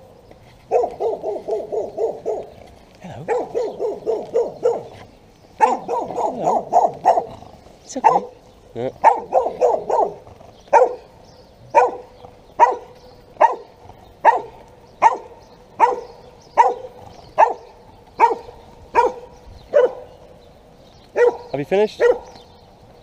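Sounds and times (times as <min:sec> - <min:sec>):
small dog barking: 0:00.7 - 0:02.6, 0:03.2 - 0:05.0, 0:05.6 - 0:07.4, 0:08.0 - 0:08.4, 0:09.0 - 0:11.1, 0:11.7 - 0:20.1, 0:21.1 - 0:22.4.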